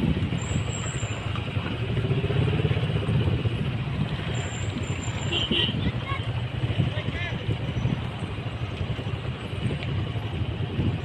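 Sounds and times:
motorcycle engines rumbling: 0:00.0 - 0:11.0.

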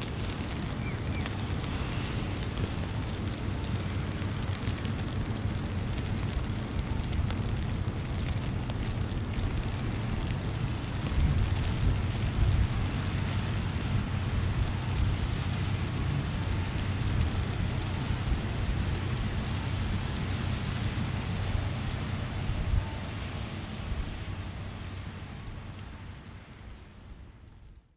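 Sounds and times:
even hiss: 0:00.0 - 0:07.5
low city rumble: 0:00.0 - 0:27.9.

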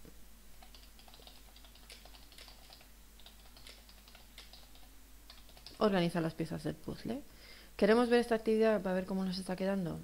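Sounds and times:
faint computer keyboard typing: 0:00.6 - 0:06.0.

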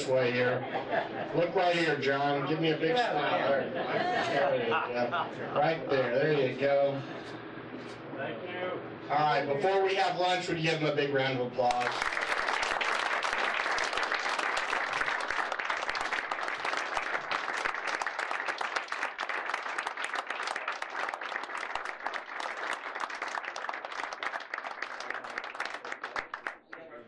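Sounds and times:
people clapping: 0:11.6 - 0:27.0.

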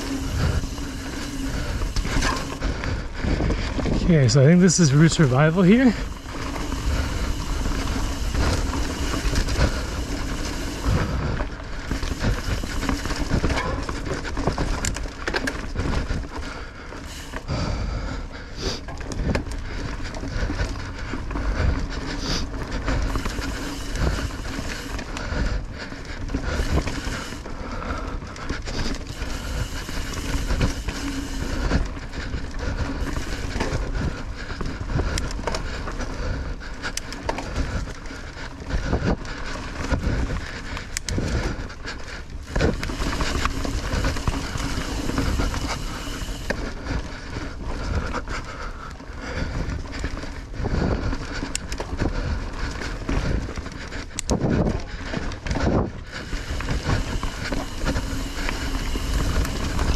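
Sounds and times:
bike rattling over bumps: 0:00.0 - 0:59.9
bike tyres rolling on dirt: 0:00.0 - 0:59.9.

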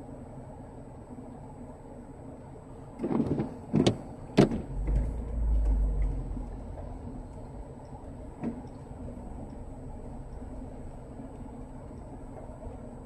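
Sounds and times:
windshield wiper on wet glass: 0:03.0 - 0:06.2, 0:08.4 - 0:09.2
low rumble: 0:04.2 - 0:13.0.

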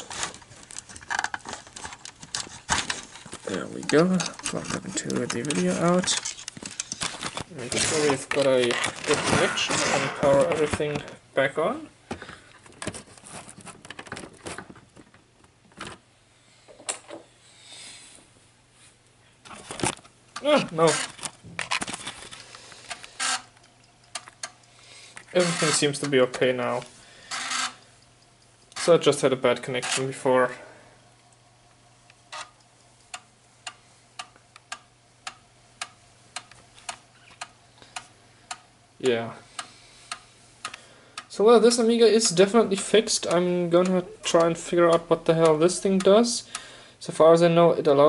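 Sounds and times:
cable connectors clicking: 0:00.0 - 0:09.2, 0:19.5 - 0:26.2
faint steady hum: 0:00.0 - 0:48.0
soft hiss: 0:16.1 - 0:21.4, 0:22.0 - 0:48.0
floppy drive clicking: 0:42.2 - 0:46.7.

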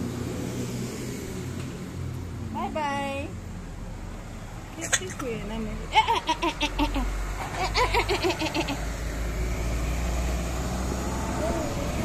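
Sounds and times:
vehicle engine rumbling: 0:00.0 - 0:12.0
toddler giggling and babbling: 0:04.8 - 0:05.3.

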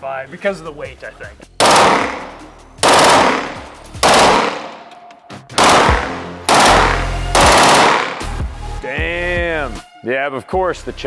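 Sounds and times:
machine pistol firing bursts: 0:01.6 - 0:04.9, 0:05.6 - 0:08.3.

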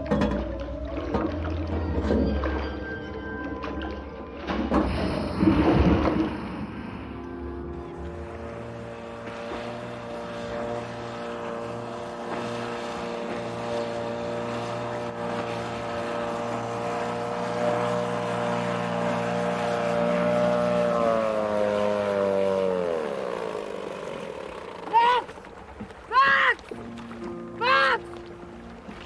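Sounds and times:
engine drone passing by: 0:00.0 - 0:25.8.

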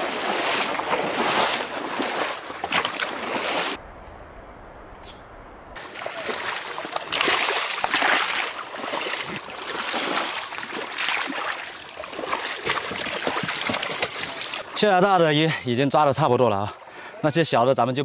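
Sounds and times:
pond water splashing: 0:00.0 - 0:03.9, 0:05.8 - 0:15.5.

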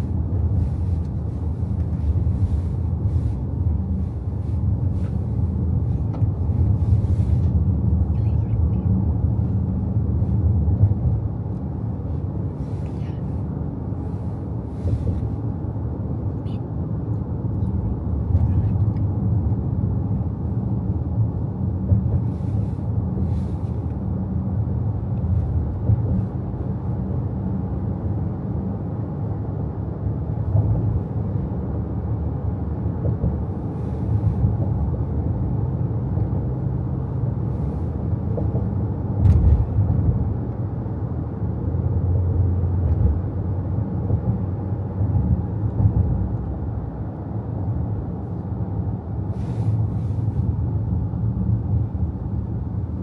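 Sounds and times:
car engine and tyre rumble: 0:00.0 - 0:53.0.

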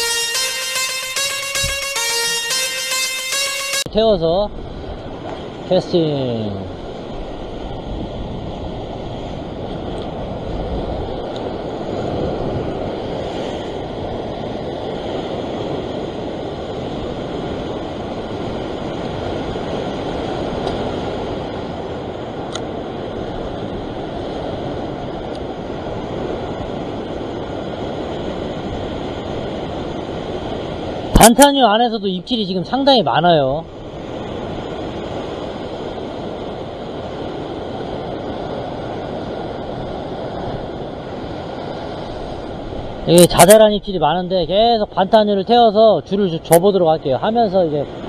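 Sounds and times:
ocean surf against rocks: 0:33.8 - 0:44.7.

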